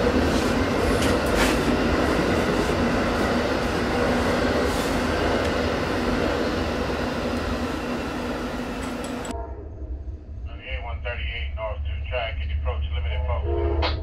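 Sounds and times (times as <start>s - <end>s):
train rumbling on rails: 0.0s - 14.0s.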